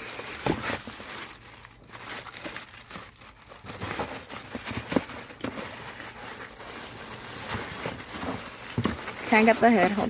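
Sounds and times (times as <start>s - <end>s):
cardboard box rustling: 0.0s - 10.0s
plastic wrapping crinkling: 0.0s - 10.0s.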